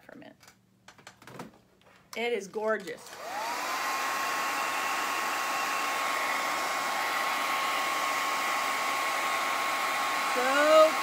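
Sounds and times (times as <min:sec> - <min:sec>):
hair dryer running: 0:02.9 - 0:11.0.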